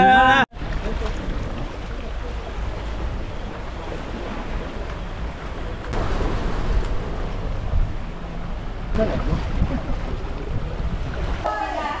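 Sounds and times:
water rushing: 0.5 - 12.0
boat engine drone: 0.6 - 12.0
wind buffeting microphone: 0.6 - 12.0.

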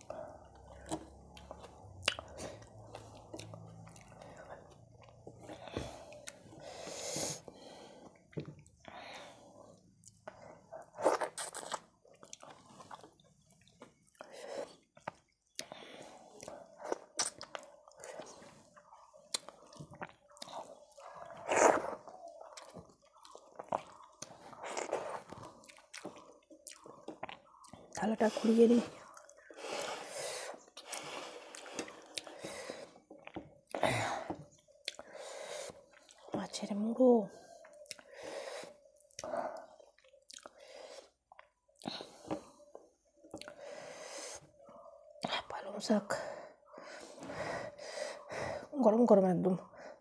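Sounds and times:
chewing: 0.3 - 6.5, 10.0 - 28.1, 28.9 - 36.6, 37.4 - 43.8
fingers squishing wet food: 9.9 - 28.2.

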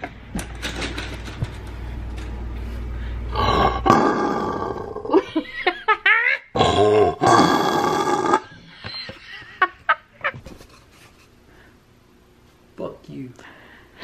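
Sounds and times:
paper towel lion-like roar: 3.3 - 5.2, 6.6 - 8.5.

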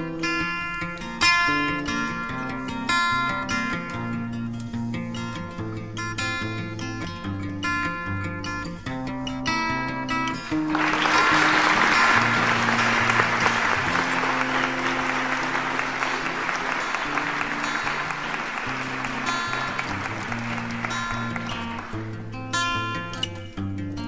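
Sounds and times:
acoustic guitar music: 0.0 - 24.0
applause: 10.5 - 23.2.

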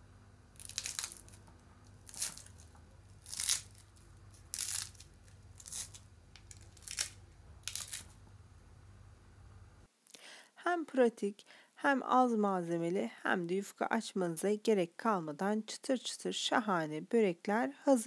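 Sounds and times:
flaky pastry crunching: 0.5 - 8.3.

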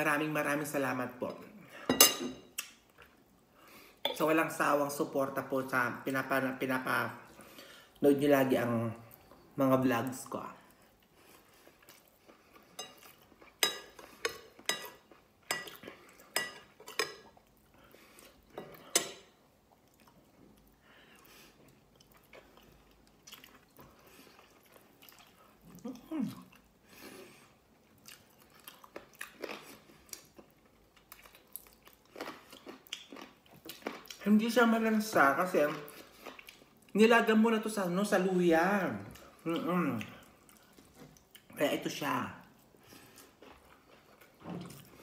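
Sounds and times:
close-up chewing and mouth clicks: 10.9 - 18.6, 19.7 - 26.7, 27.8 - 34.2, 35.6 - 37.0, 42.4 - 45.0.

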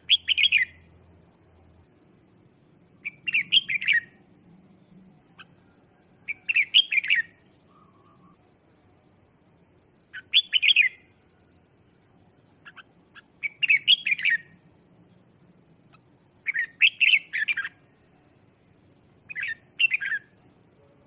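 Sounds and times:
bulbul singing warbled phrases: 0.0 - 1.2, 2.7 - 5.6, 6.3 - 8.4, 10.0 - 11.2, 12.4 - 14.6, 15.9 - 18.5, 19.2 - 21.0.

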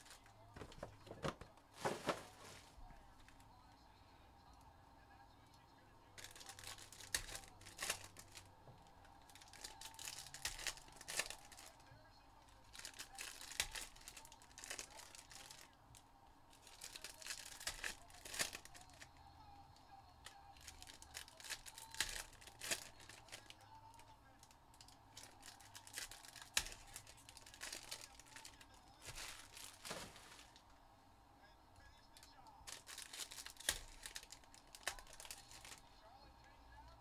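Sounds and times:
foil wrappers tearing and crinkling: 0.0 - 2.8, 6.2 - 8.5, 9.3 - 11.8, 12.6 - 15.7, 16.5 - 19.1, 20.3 - 30.6, 32.6 - 35.8.

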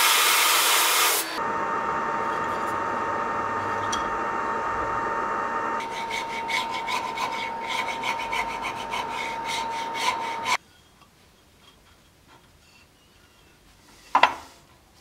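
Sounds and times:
hand file rasping wood: 5.8 - 10.6.

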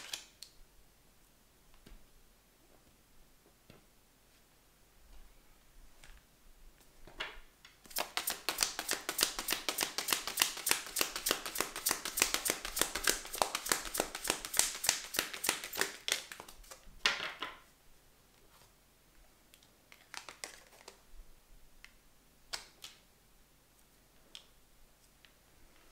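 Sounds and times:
cards being shuffled: 7.9 - 16.8, 20.0 - 21.0.

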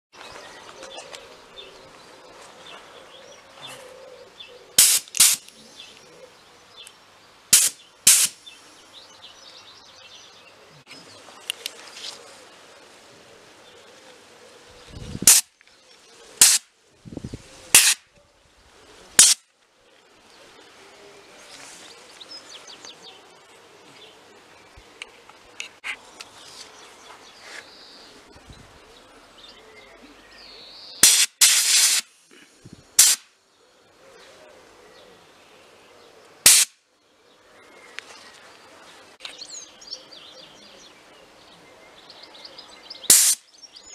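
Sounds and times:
compressed air blasts: 4.8 - 5.5, 7.5 - 8.4, 15.1 - 15.5, 16.4 - 16.7, 17.7 - 18.0, 19.2 - 19.4, 31.0 - 32.2, 33.0 - 33.3, 36.4 - 36.8, 43.1 - 43.4
wind buffeting microphone: 14.7 - 15.3, 17.0 - 17.7.

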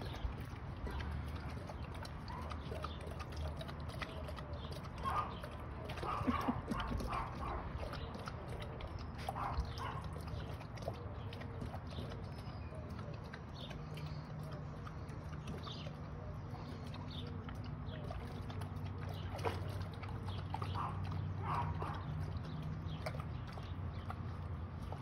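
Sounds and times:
dogs lapping water: 0.0 - 25.0.

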